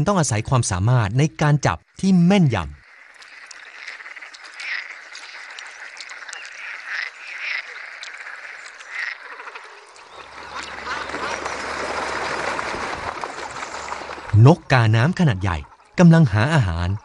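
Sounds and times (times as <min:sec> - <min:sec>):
frogs croaking: 0:00.0 - 0:17.0.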